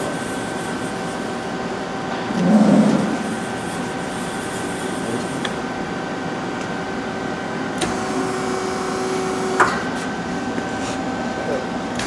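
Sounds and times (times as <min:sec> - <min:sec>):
machine hum with high tone: 0:00.0 - 0:12.0
turret whine while turning: 0:02.2 - 0:04.1.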